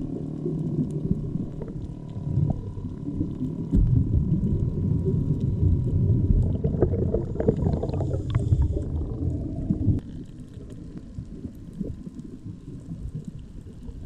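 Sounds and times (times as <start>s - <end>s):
muffled underwater water rumble: 0.0s - 14.0s.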